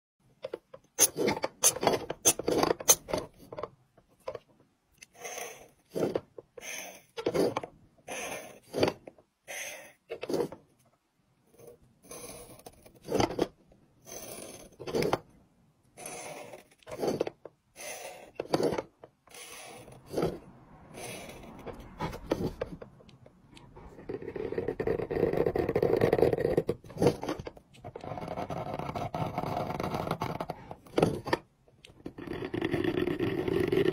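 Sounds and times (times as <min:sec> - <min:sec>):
knife scraping stone: 0:01.0 - 0:03.1, 0:16.0 - 0:20.4.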